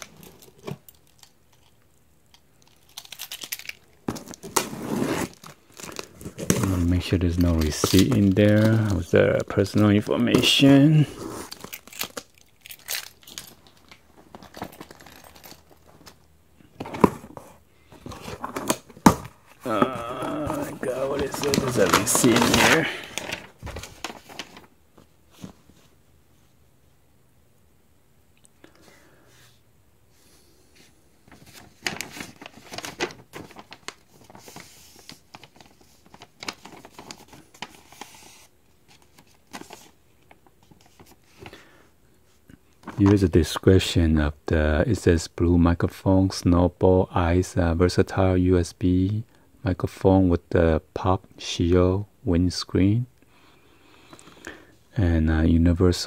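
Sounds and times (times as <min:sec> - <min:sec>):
handling clicks and rustles: 0:00.0 - 0:25.8
paper crinkling: 0:02.5 - 0:16.2, 0:17.9 - 0:25.8, 0:31.2 - 0:41.7.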